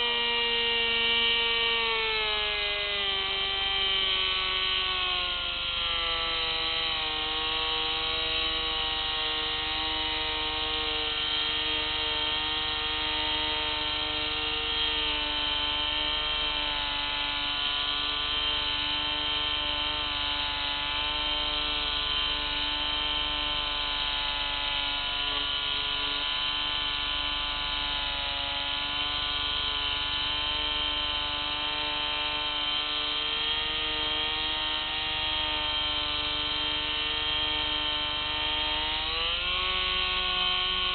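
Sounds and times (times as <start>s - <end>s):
model aircraft motor whine: 0.0s - 40.9s.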